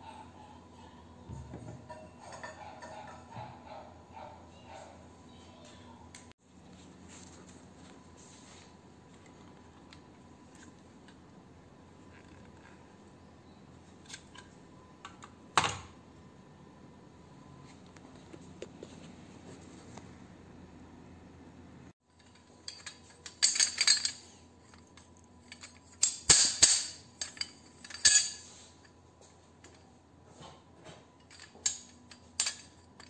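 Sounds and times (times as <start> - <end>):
metal parts clinking and clattering: 22.1 - 28.8, 31.2 - 33.0.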